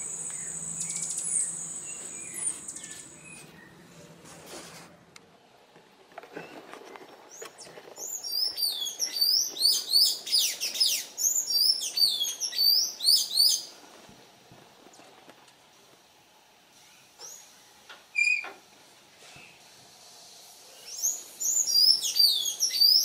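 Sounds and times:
songbirds chirping: 0:00.0 - 0:04.3, 0:06.2 - 0:13.8.

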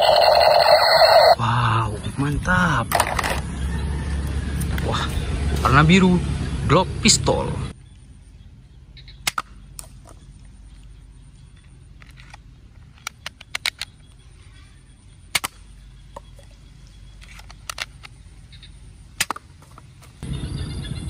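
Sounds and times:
toy pistol plastic clicks: 0:13.0 - 0:14.0.

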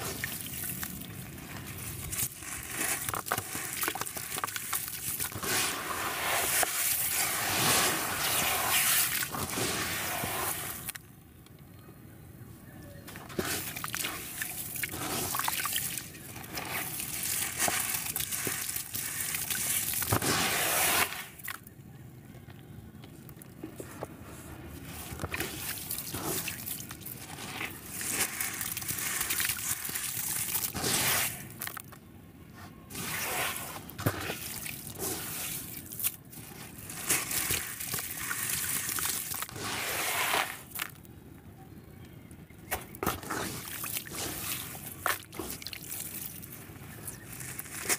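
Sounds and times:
water sloshing and trickling: 0:00.0 - 0:11.0, 0:13.2 - 0:20.3, 0:24.8 - 0:31.8, 0:32.9 - 0:39.9, 0:43.0 - 0:47.9
wet sand grains grinding by hand: 0:00.0 - 0:11.0, 0:13.2 - 0:21.4, 0:24.7 - 0:31.6, 0:32.9 - 0:40.8.

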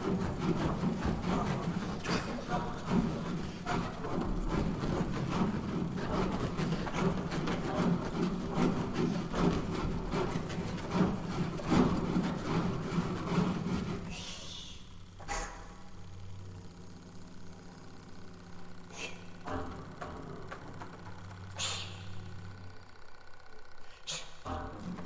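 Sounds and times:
hands rubbing inflatable ball: 0:00.0 - 0:14.4.

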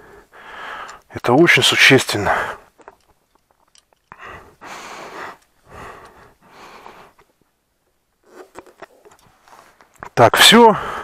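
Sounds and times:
person breathing heavily: 0:00.0 - 0:01.1, 0:04.1 - 0:07.2, 0:10.7 - 0:11.0.

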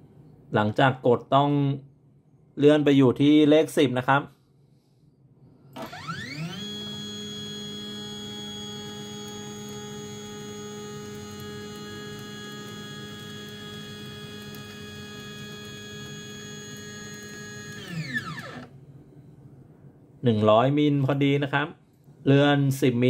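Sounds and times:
stepper motor whining: 0:05.8 - 0:18.8.

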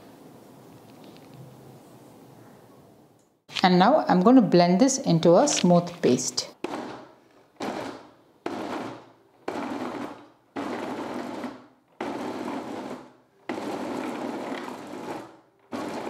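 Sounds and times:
mixer grinder pulsing: 0:06.6 - 0:16.0.

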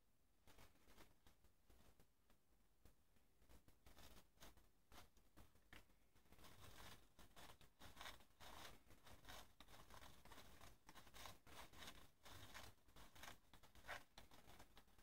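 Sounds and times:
tissue paper rustling and scraping: 0:06.2 - 0:15.0.

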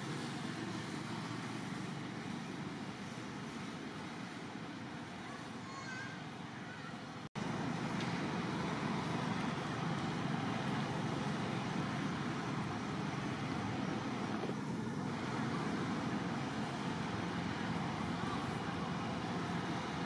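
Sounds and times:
distant road traffic hum: 0:00.0 - 0:20.0.

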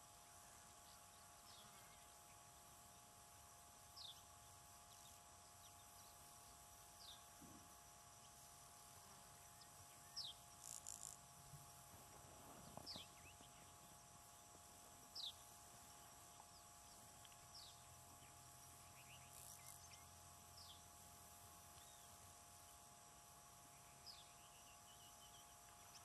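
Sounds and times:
faint steady hum: 0:00.0 - 0:26.0
distant small birds chirping: 0:08.0 - 0:21.0.

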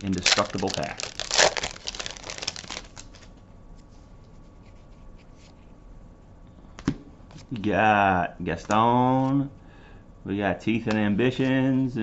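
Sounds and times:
foil wrapper crinkling: 0:00.0 - 0:03.3.

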